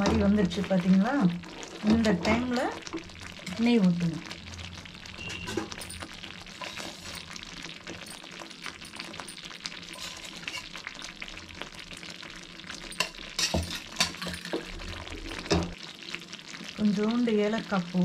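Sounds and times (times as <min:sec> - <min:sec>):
thick mixture bubbling and sputtering: 0:00.0 - 0:18.0.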